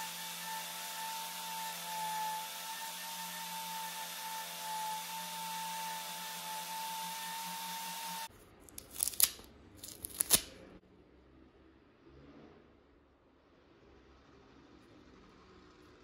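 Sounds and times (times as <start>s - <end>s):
buffing wheel motor whine: 0.0s - 8.3s
wrapping crinkling and tearing: 8.6s - 10.6s.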